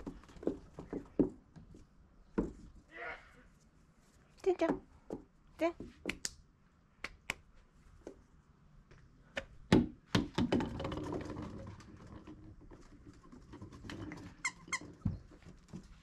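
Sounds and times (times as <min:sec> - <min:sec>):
ball rolling on wooden deck: 0:00.0 - 0:02.8, 0:10.1 - 0:16.0.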